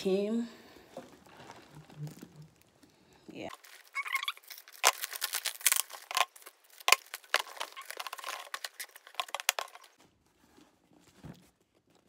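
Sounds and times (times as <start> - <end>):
packaging crinkling: 0.9 - 10.3.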